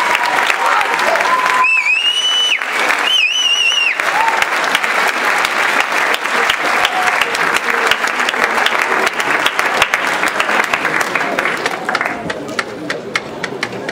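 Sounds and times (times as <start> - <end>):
audience applauding: 0.0 - 13.9
shrill whistle: 1.6 - 4.0.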